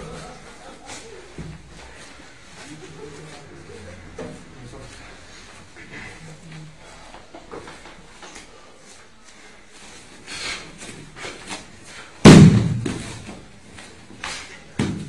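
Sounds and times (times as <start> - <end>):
small thud: 12.2 - 13.2
body slamming onto mat: 12.2 - 13.3.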